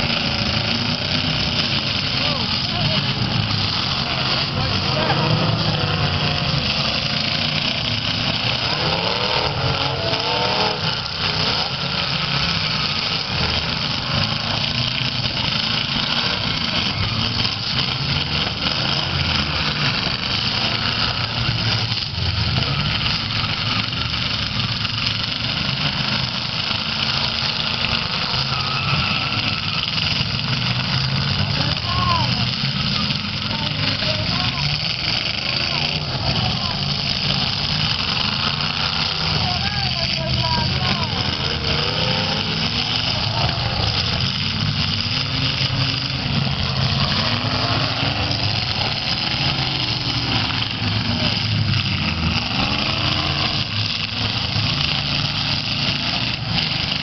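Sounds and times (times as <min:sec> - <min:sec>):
car engines revving hard: 0:00.0 - 0:57.0
wheels spinning: 0:00.0 - 0:57.0.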